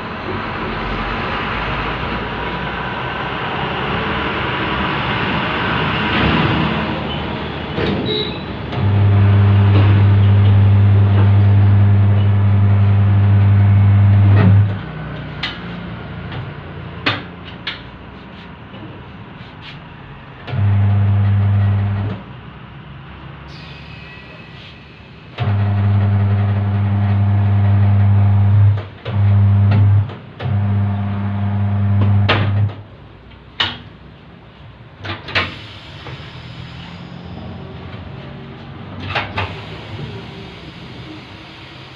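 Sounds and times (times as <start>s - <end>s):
electric motor humming: 8.8s - 14.7s, 20.5s - 22.1s, 25.4s - 32.6s.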